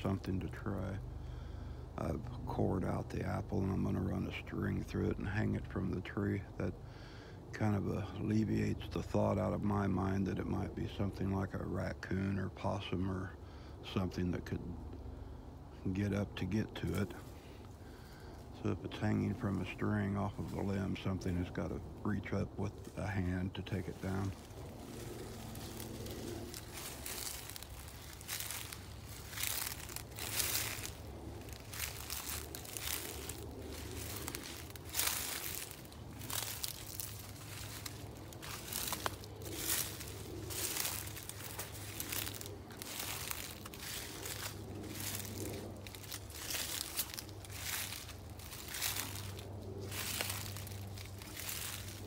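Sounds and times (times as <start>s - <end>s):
footsteps crunching dry leaves: 15.9s - 52.0s.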